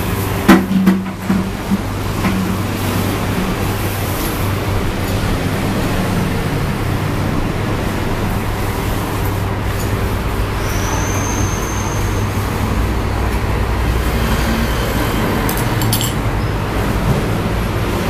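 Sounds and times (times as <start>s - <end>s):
road traffic rumble: 0.0s - 18.0s
thin high whine: 6.3s - 12.9s.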